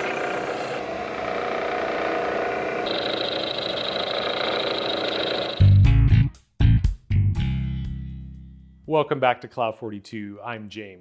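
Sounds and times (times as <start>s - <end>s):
milling machine cutting metal: 0.0s - 5.6s
high whine: 0.0s - 5.8s.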